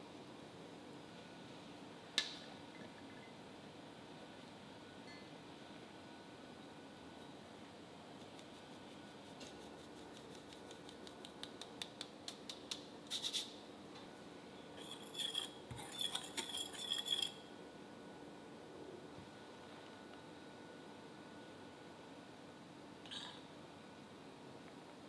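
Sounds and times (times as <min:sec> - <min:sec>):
whisk clinking against glass bowl: 0:14.8 - 0:17.4.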